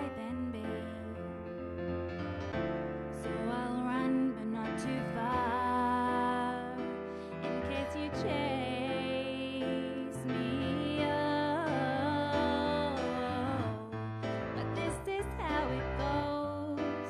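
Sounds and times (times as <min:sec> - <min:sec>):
woman singing: 0:00.0 - 0:01.4, 0:03.2 - 0:17.0
keyboard piano accompaniment: 0:00.0 - 0:17.0.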